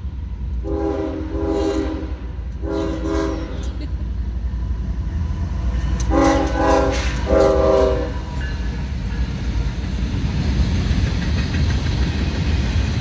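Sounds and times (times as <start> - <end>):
locomotive air horn blasts: 0.6 - 3.8, 6.0 - 8.3.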